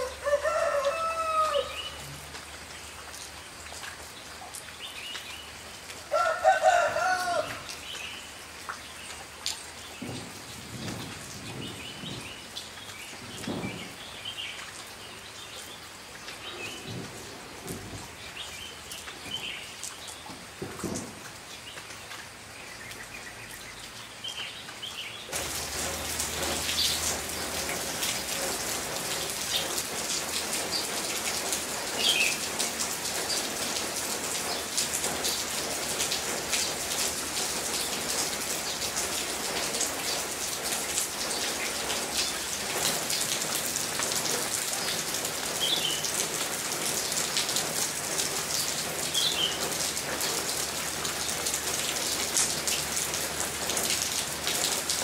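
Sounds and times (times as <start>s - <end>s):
rooster crowing: 0.0s - 2.0s, 6.1s - 7.7s
rain falling: 0.0s - 55.0s.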